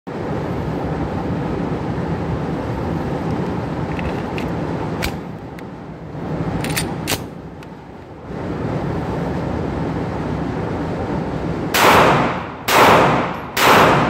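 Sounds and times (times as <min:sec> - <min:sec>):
metallic pistol clicks: 0:06.6 - 0:07.7.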